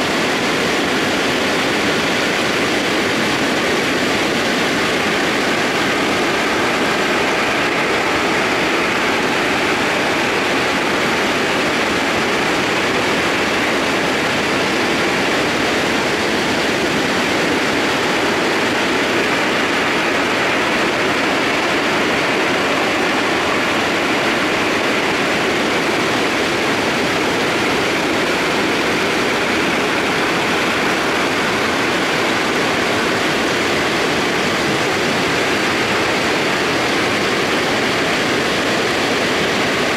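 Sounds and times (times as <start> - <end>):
mudflow rushing with tumbling stones: 0.0 - 39.9.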